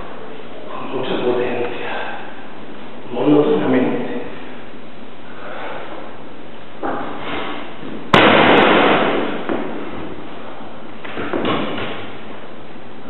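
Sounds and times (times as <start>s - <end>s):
noisy burst: 0.0s - 13.0s
steady hiss: 0.0s - 13.0s
loud bang: 7.3s - 10.2s.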